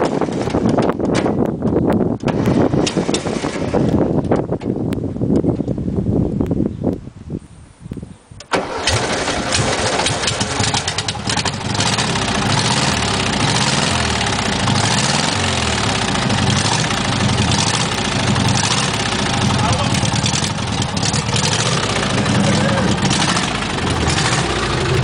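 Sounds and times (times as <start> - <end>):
engine starting and idling: 8.5 - 25.0.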